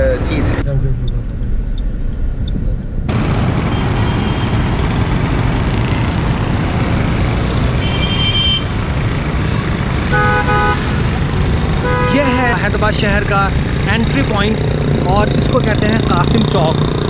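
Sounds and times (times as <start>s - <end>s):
road traffic: 0.0s - 17.0s
car horn toots: 7.8s - 8.7s, 10.1s - 11.0s, 11.8s - 12.4s.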